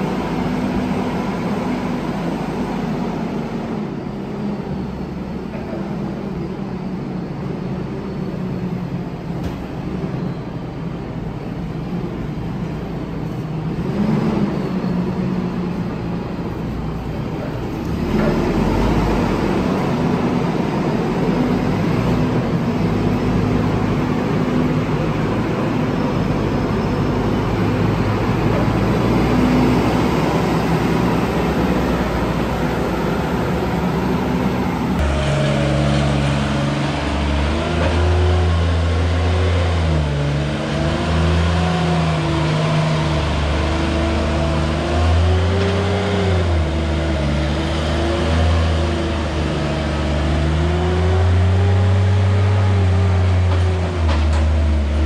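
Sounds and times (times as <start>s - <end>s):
loader diesel engine: 0.0s - 55.0s
loader engine revving: 11.8s - 55.0s.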